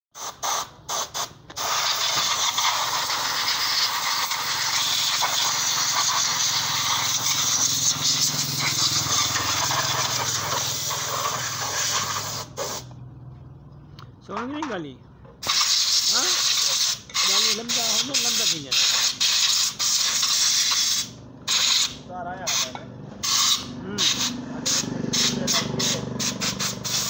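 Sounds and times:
compressed air spray hissing: 0.2s - 12.9s, 15.4s - 27.0s.

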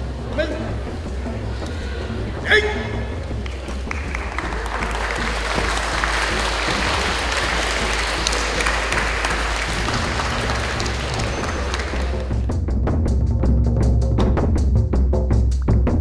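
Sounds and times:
low background music: 0.0s - 16.0s
audience applauding: 3.3s - 12.5s.

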